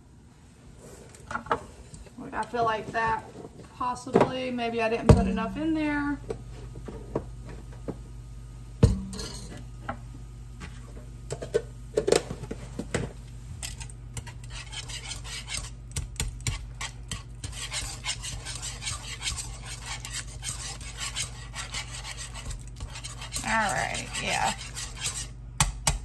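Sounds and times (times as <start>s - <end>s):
whisk scraping in a pot: 13.6s - 25.4s.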